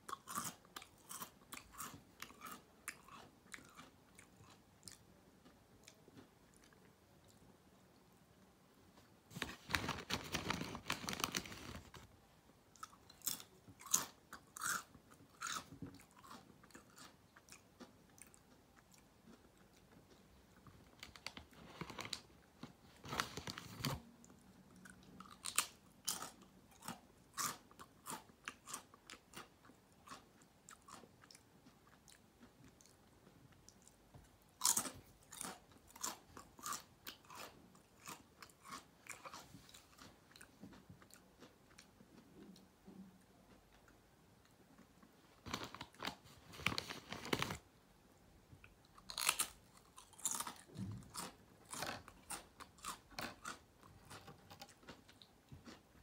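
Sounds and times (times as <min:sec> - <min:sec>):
chips crunching while chewed: 0:00.1 - 0:06.8, 0:12.8 - 0:22.3, 0:24.8 - 0:33.0, 0:33.7 - 0:42.2, 0:49.0 - 0:55.9.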